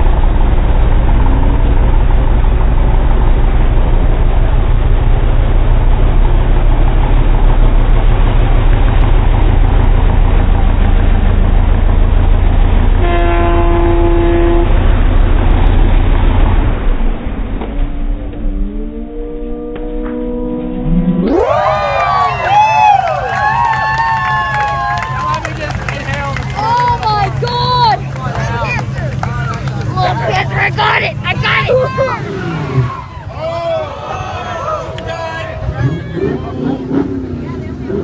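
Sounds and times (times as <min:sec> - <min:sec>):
vehicle horn: 0:13.0 - 0:14.8
car engine revving high: 0:16.3 - 0:33.4, 0:35.4 - 0:38.0.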